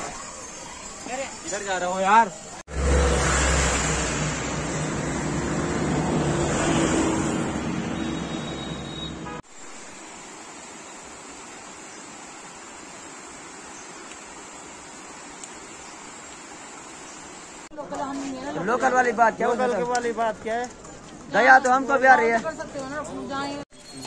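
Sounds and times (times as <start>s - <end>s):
stream flowing over rocks: 9.5s - 17.8s.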